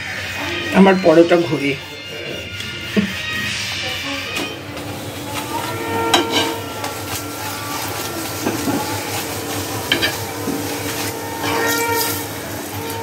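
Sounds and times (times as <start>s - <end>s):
flatbread frying in a pan: 4.6s - 13.0s
spatula clinking and scraping pan: 5.4s - 13.0s.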